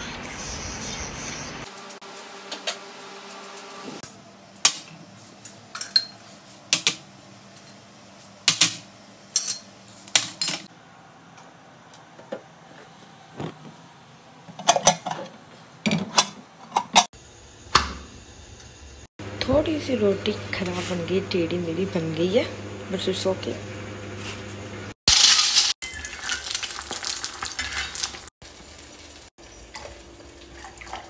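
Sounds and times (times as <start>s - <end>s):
utensils clinking on steel cookware: 5.7s - 6.2s, 8.5s - 10.7s, 14.5s - 15.3s.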